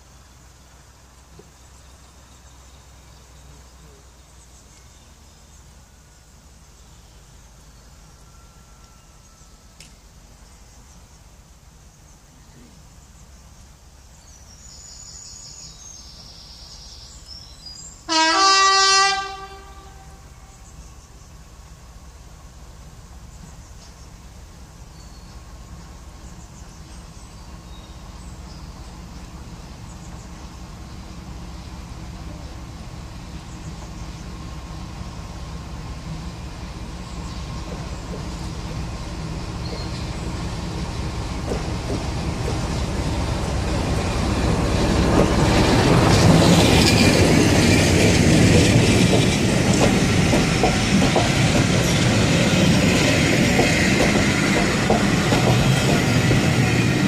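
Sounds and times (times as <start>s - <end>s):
diesel locomotive engine drone: 0.0s - 57.0s
locomotive horn blast: 18.1s - 20.6s.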